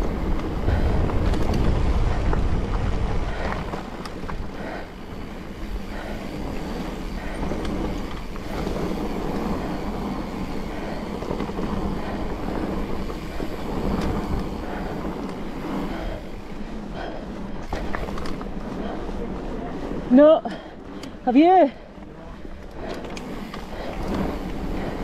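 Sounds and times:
wind buffeting microphone: 0.0s - 21.8s
bike tyres rumbling on dirt: 0.0s - 25.0s.

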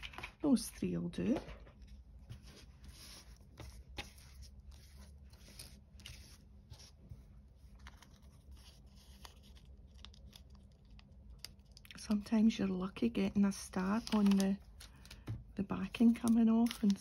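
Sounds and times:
paper stickers rustling: 1.8s - 7.0s, 7.6s - 11.9s, 13.6s - 15.3s, 15.9s - 17.0s.

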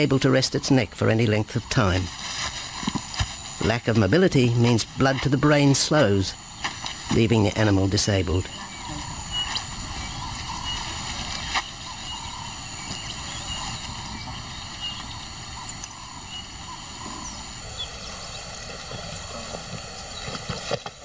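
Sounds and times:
faint high chirps: 7.3s - 20.4s.

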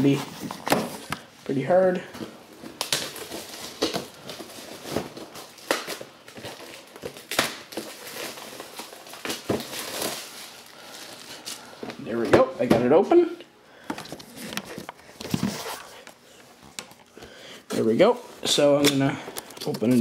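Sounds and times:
packaging crinkling and tearing: 2.5s - 11.7s.

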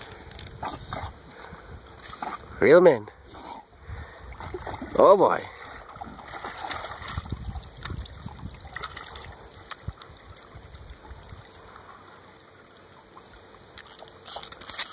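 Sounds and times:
water sloshing and trickling: 3.6s - 14.9s.

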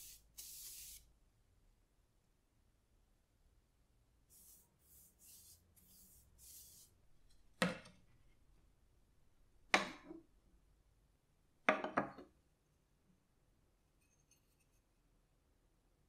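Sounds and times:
wooden parts knocking on table: 11.7s - 12.3s.

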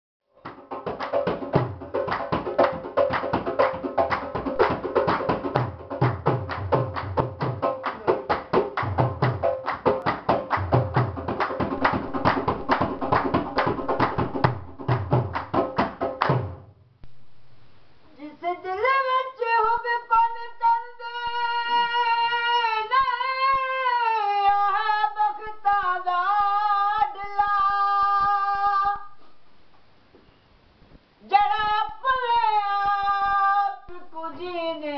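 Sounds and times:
hand clapping: 0.4s - 16.6s
drum beats: 0.4s - 17.8s.

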